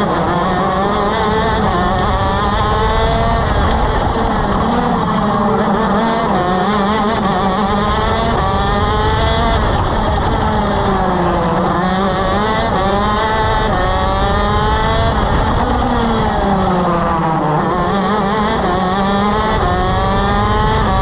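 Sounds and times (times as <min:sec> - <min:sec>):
kart engine running hard: 0:00.0 - 0:21.0.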